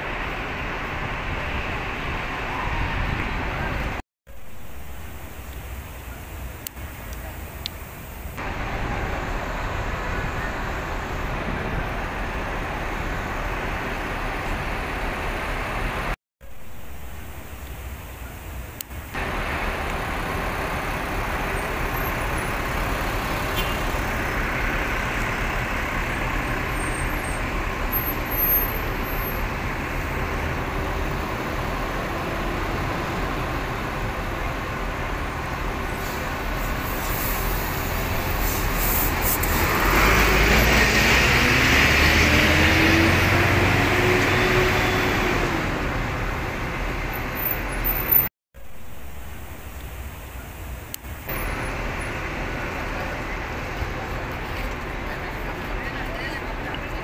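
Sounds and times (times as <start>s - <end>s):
city street traffic: 0.0s - 57.0s
vehicle engine speeding up: 39.0s - 46.8s.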